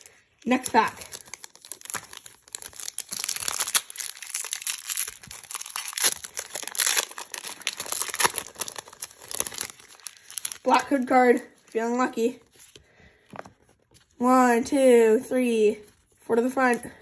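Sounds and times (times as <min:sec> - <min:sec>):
foil wrapper tearing and crinkling: 0:00.0 - 0:11.3.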